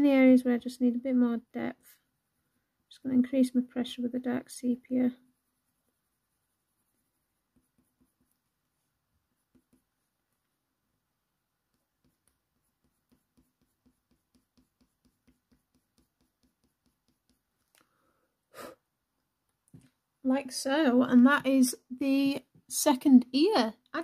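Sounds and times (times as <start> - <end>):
pencil strokes on paper: 3.1 - 17.8.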